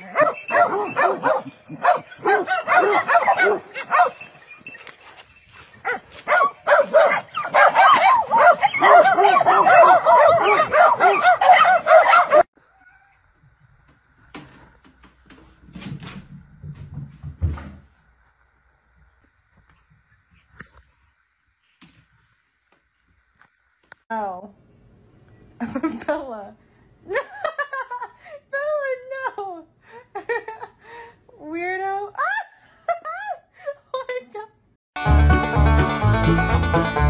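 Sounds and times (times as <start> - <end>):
hounds baying and yelping: 0.1 - 13.2.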